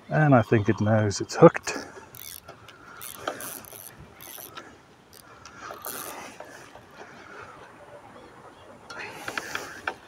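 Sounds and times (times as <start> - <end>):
fishing reel whirring and clicking: 2.1 - 6.5.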